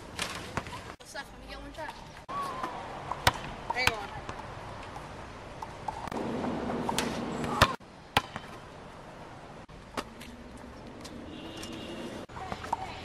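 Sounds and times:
basketball bouncing on asphalt: 0:01.7 - 0:08.7, 0:09.9 - 0:13.0.

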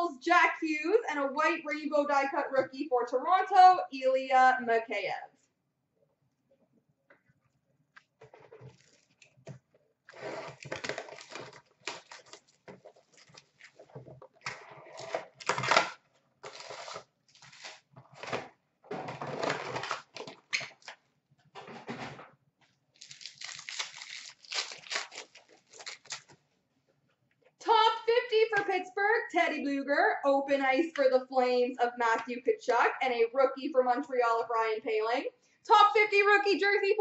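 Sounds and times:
cardboard tearing: 0:10.1 - 0:18.5, 0:19.2 - 0:20.4, 0:23.0 - 0:26.4
pack wrappers crinkling: 0:10.5 - 0:14.0, 0:15.0 - 0:18.4, 0:23.0 - 0:26.4.

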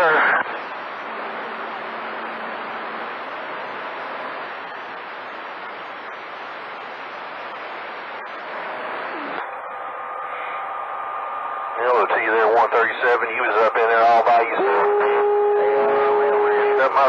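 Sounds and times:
radio carrier signal: 0:00.0 - 0:01.8, 0:09.0 - 0:17.0
radio static hiss: 0:00.0 - 0:10.7, 0:11.7 - 0:17.0.

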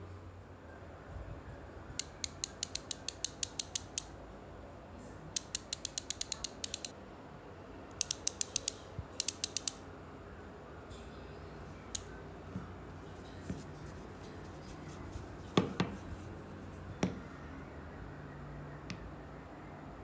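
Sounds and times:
bicycle hub clicking: 0:02.0 - 0:04.1, 0:05.4 - 0:06.9, 0:07.9 - 0:09.8.

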